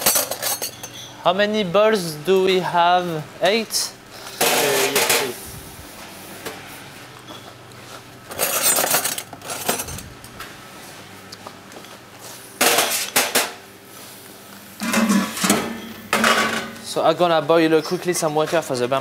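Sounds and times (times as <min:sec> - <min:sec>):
ceramic basins clinking on steel: 0:00.0 - 0:01.1.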